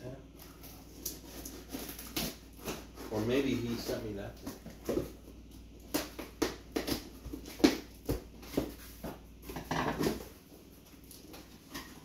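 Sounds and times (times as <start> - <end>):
rustling and scraping: 0.4 - 5.4.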